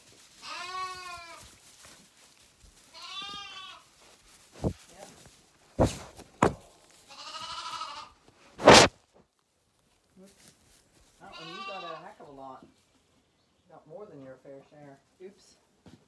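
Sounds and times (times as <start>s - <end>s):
lambs bleating: 0.4s - 1.5s, 2.8s - 4.0s, 7.0s - 8.9s, 11.2s - 12.2s.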